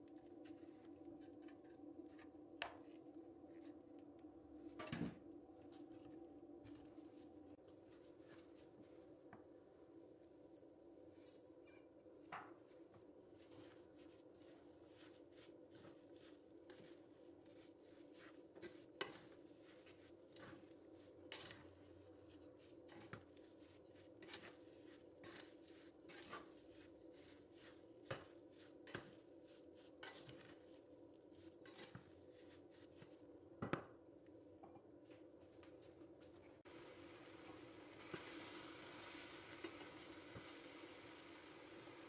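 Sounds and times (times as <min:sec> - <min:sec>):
spoon scraping saucepan: 0:21.3 - 0:21.7, 0:29.9 - 0:30.6, 0:31.6 - 0:32.6.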